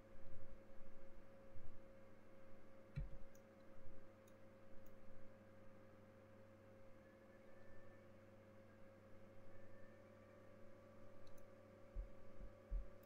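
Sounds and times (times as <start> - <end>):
low electrical hum: 0.0 - 13.0
faint clicks: 11.2 - 11.5.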